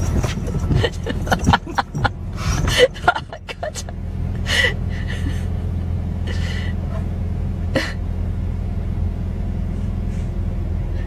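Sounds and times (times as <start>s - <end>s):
windshield wipers sweeping: 0.0s - 3.9s
car engine idling: 0.0s - 11.0s.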